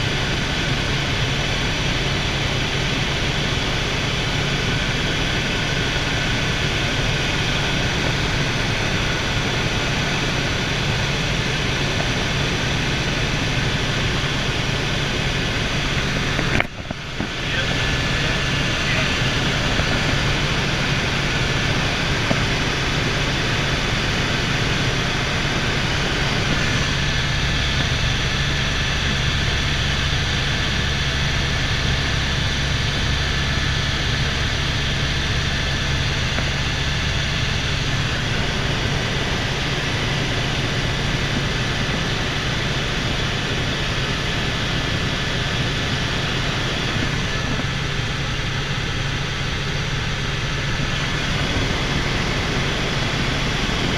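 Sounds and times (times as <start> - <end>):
helicopter rotor and engine drone: 0.0 - 53.9
high whine: 0.0 - 53.9.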